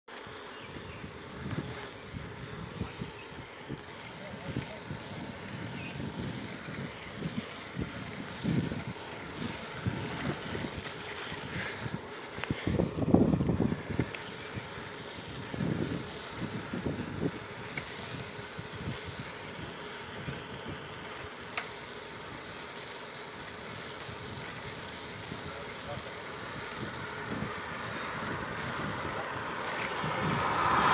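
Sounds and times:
tyres rushing on asphalt: 0:00.2 - 0:30.9
wind buffeting microphone: 0:00.6 - 0:21.1, 0:23.4 - 0:30.9.

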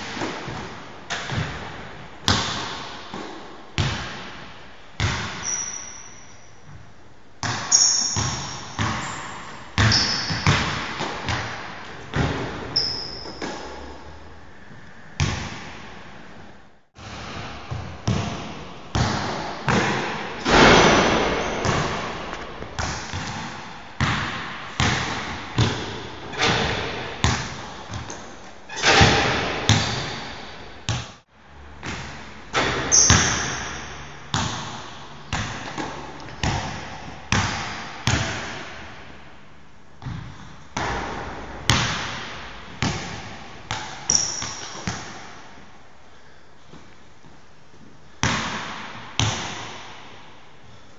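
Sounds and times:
basketball bouncing echoing: 0:00.0 - 0:14.4, 0:15.0 - 0:46.4, 0:48.2 - 0:50.4
short high squeaks: 0:05.4 - 0:06.5, 0:07.7 - 0:10.4, 0:12.8 - 0:13.8, 0:32.9 - 0:33.8.

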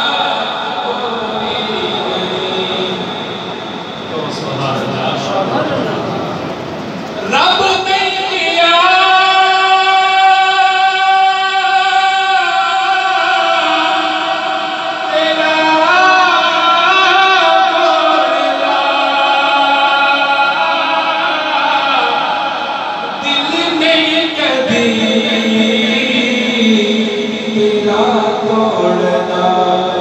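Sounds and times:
man singing over pa system: 0:00.0 - 0:04.3, 0:07.2 - 0:30.0.

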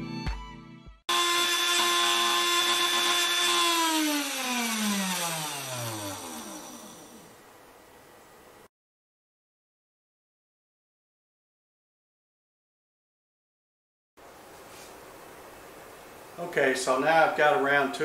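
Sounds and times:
spindle motor whining: 0:01.1 - 0:07.4.

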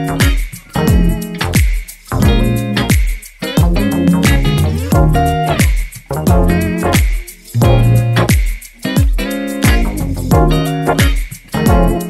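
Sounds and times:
bass and melodic instrument: 0:00.0 - 0:03.0, 0:03.6 - 0:08.4, 0:09.6 - 0:12.0
deep drum hits: 0:00.2 - 0:02.6, 0:03.6 - 0:08.0.

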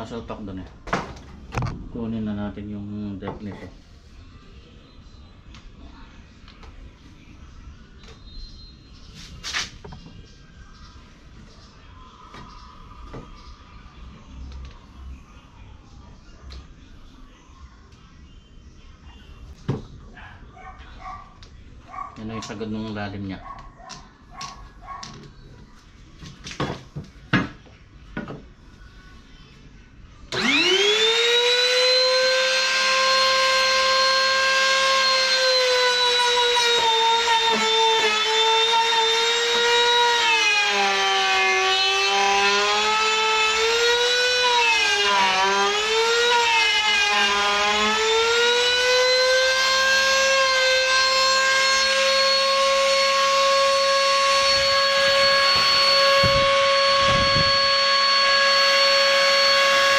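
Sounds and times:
wood router whining: 0:30.3 - 0:59.9.

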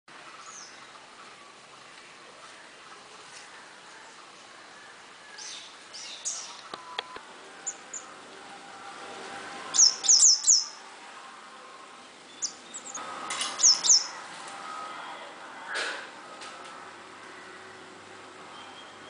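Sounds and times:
bird chirping: 0:05.2 - 0:08.2, 0:09.7 - 0:10.9, 0:12.0 - 0:14.2, 0:18.5 - 0:19.0.

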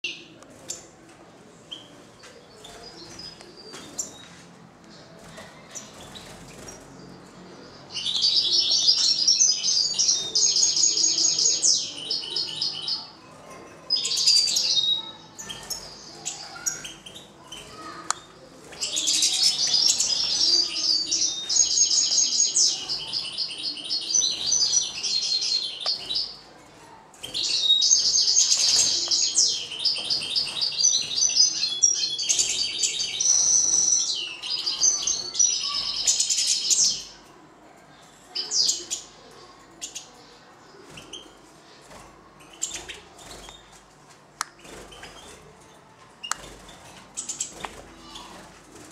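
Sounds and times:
songbirds trilling: 0:05.6 - 0:13.2, 0:13.8 - 0:26.5, 0:27.2 - 0:37.2.

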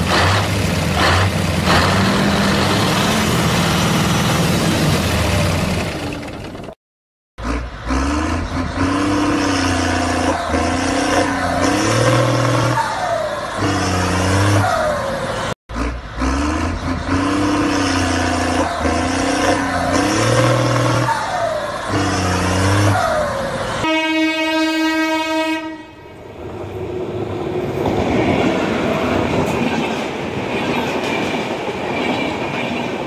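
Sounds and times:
engine revving: 0:00.0 - 0:06.4, 0:07.4 - 0:23.8.

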